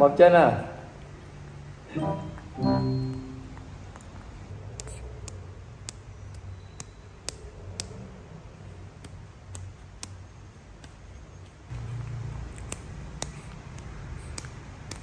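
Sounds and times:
sharp little clicks: 3.9 - 8.1, 11.7 - 15.0.

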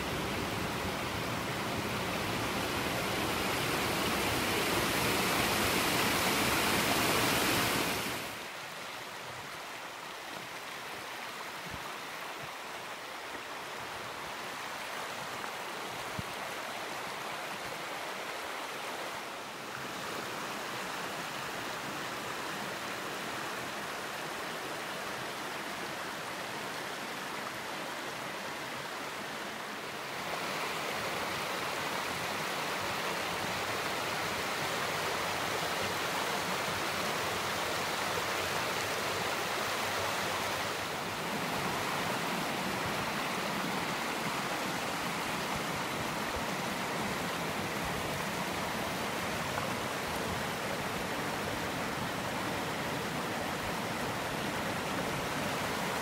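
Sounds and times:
stream running over stones: 0.0 - 56.0.

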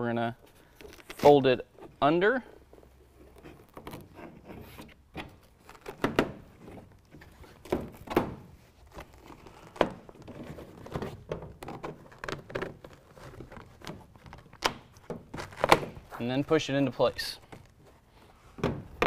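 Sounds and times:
knocks and thumps: 18.6 - 19.0.

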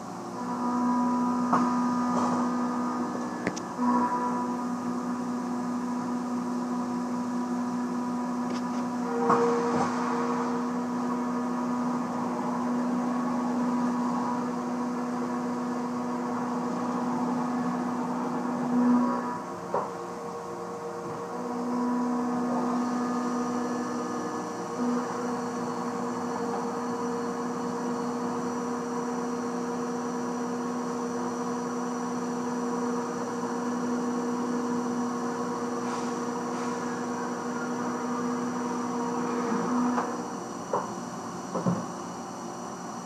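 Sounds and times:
faint high whine: 0.0 - 40.6
cnc mill cutting steel: 0.0 - 43.0.

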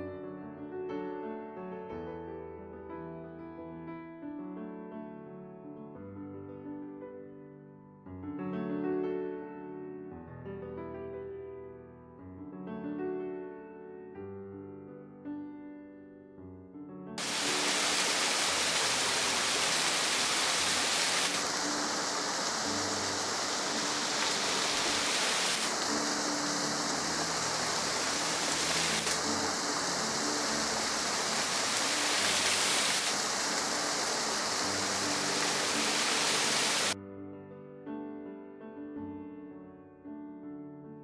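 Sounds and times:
soft piano music: 0.0 - 41.0
waterfall splashing on rock: 17.2 - 37.0.

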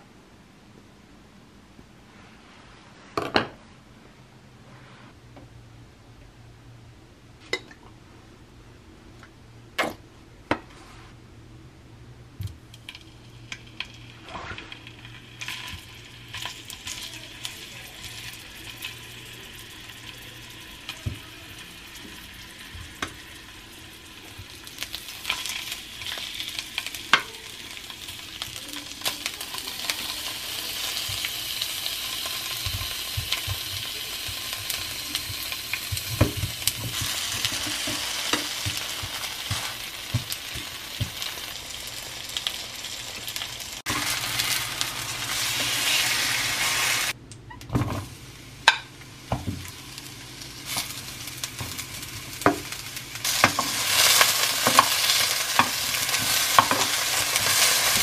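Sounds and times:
food sizzling in frying pan: 12.7 - 47.2, 47.8 - 58.0.

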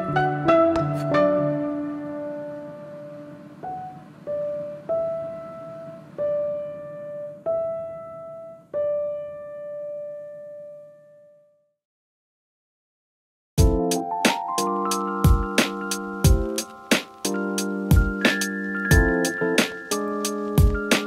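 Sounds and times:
slow piano single notes: 0.0 - 11.3.

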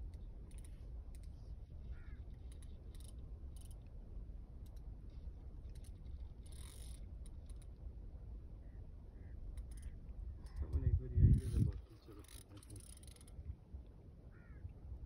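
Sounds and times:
fishing reel clicking: 0.0 - 1.4, 2.0 - 4.0, 5.6 - 7.8, 9.5 - 13.4
fishing reel rasp: 0.2 - 3.9, 5.6 - 7.8, 9.5 - 13.5.

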